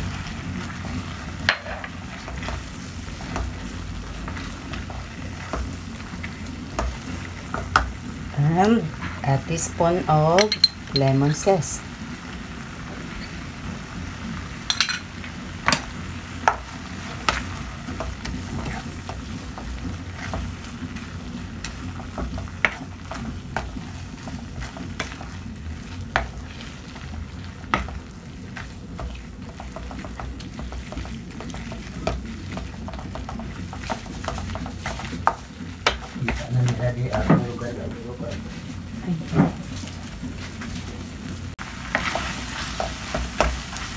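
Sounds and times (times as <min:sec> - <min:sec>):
wooden spoon scraping sticky mixture: 0:17.1 - 0:41.0.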